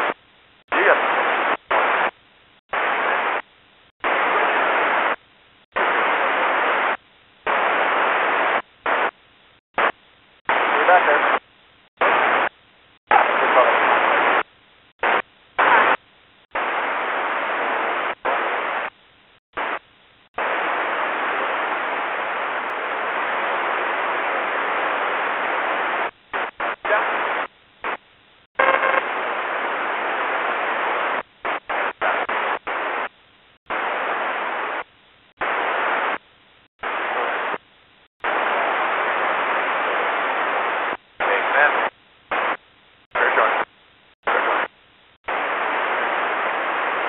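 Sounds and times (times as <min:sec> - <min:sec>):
radio static bursts: 0:00.0 - 0:03.4, 0:04.0 - 0:05.2, 0:05.8 - 0:09.2, 0:09.8 - 0:19.0, 0:19.6 - 0:19.8, 0:20.4 - 0:28.0, 0:28.6 - 0:36.2, 0:36.8 - 0:37.6, 0:38.2 - 0:47.0.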